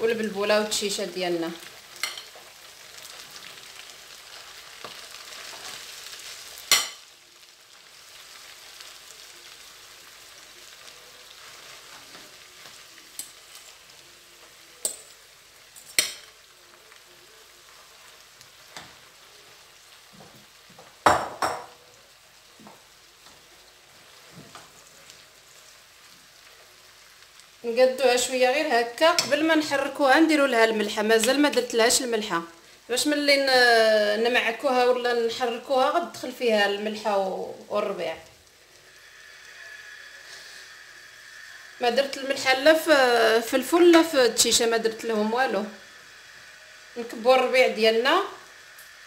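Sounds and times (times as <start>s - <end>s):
beans sizzling in a frying pan: 0.0s - 49.0s.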